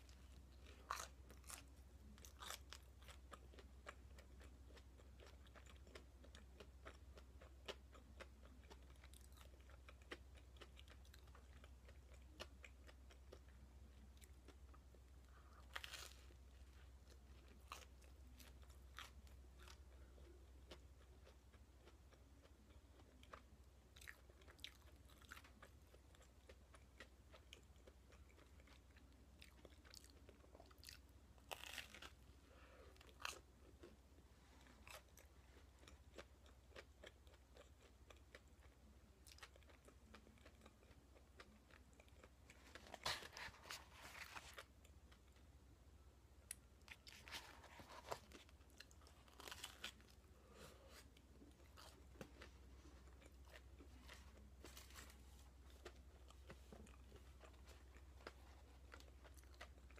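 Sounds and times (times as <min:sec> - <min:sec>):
crunchy toast bites: 0:00.6 - 0:07.0, 0:15.6 - 0:16.4, 0:29.4 - 0:32.2, 0:46.9 - 0:50.2.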